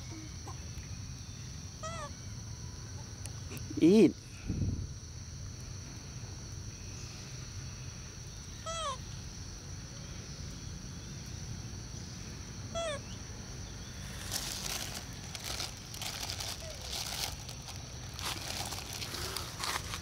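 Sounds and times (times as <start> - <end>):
rustle: 0.0 - 20.0
young monkey squeaky calls: 1.8 - 2.1, 8.6 - 9.0, 12.7 - 13.2.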